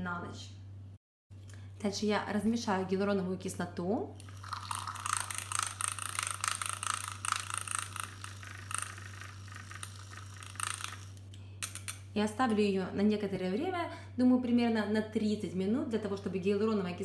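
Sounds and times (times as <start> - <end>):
milk frother whirring: 4.2 - 11.3.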